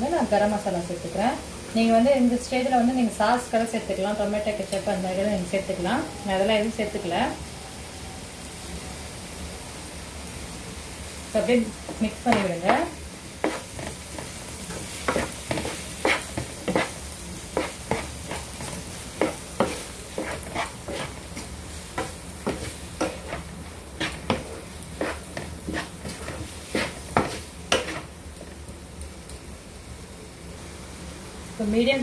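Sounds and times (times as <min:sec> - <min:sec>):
food sizzling: 0:00.0 - 0:32.0
wooden spatula scraping frying pan: 0:11.8 - 0:28.6.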